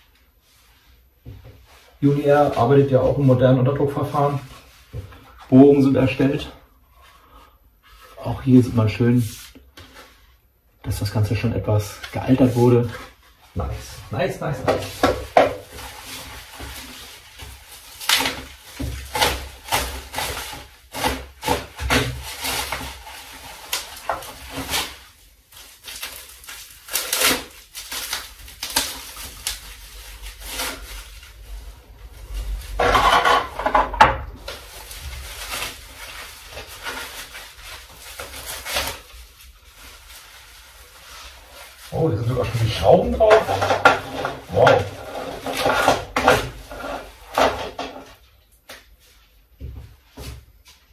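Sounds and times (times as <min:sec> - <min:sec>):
plastic packaging crinkling: 0:11.9 - 0:48.2.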